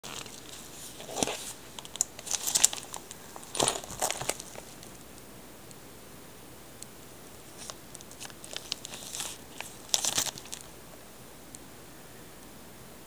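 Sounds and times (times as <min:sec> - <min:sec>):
plastic disc sleeves crinkling: 0:00.0 - 0:05.0, 0:07.5 - 0:10.8.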